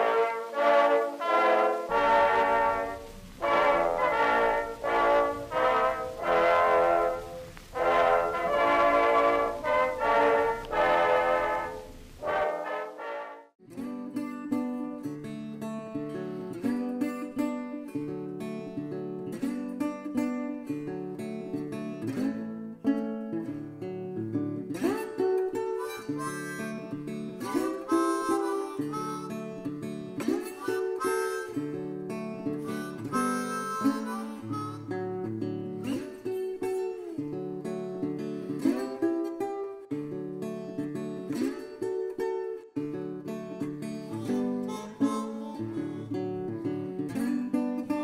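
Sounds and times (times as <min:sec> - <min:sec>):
harmonica melody: 0:00.0 - 0:13.4, 0:24.8 - 0:36.0, 0:43.8 - 0:47.0
acoustic guitar strumming: 0:00.0 - 0:48.0.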